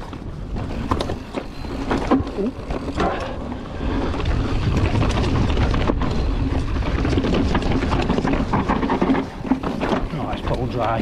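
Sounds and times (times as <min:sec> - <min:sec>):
bike rattling with sharp clicks: 0:00.0 - 0:11.0
bike tyres rolling over dirt: 0:00.0 - 0:11.0
wind rumble on microphone: 0:00.0 - 0:11.0.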